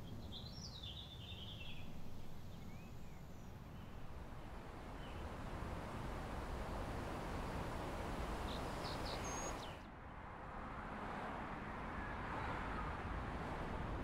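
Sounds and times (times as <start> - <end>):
outdoor noise bed: 0.0 - 14.0.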